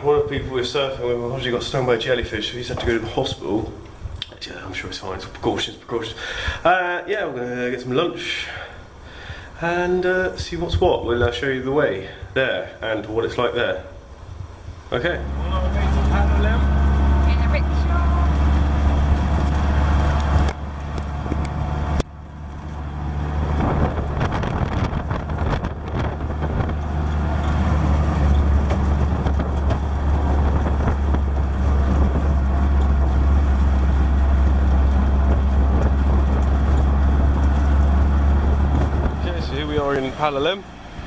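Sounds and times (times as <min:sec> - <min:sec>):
road and wind noise: 0:00.0 - 0:41.0
auto-rickshaw engine droning: 0:14.0 - 0:41.0.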